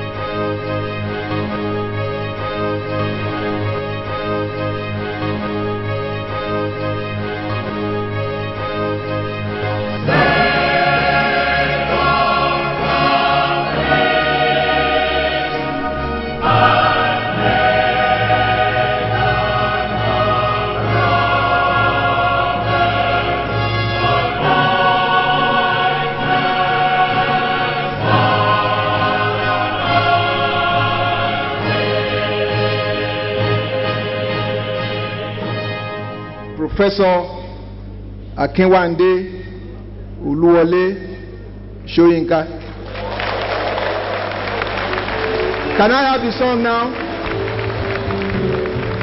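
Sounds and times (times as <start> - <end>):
choir singing held chords: 0.0 - 36.6.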